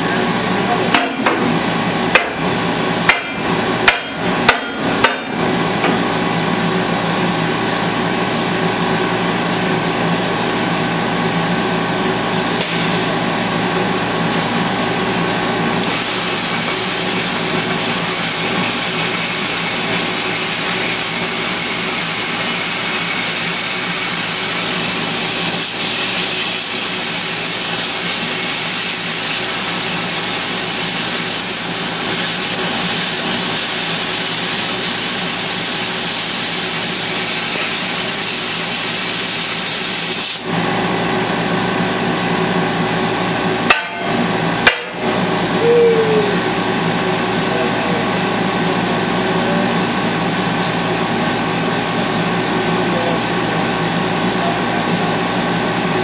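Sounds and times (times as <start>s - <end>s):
sharp metallic knocks: 3.1s - 6.0s, 43.7s - 45.0s
cutting torch hissing: 15.8s - 40.5s.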